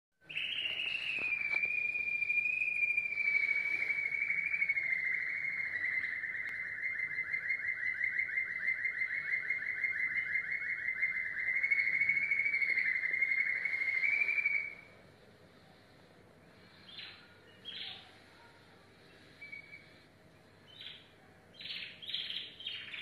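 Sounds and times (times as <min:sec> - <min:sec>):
finch singing a trill: 0:20.7 - 0:23.0.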